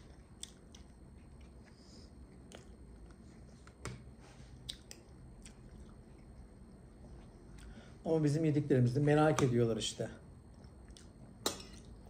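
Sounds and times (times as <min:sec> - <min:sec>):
chewing meat: 0:00.0 - 0:03.2, 0:04.6 - 0:07.7.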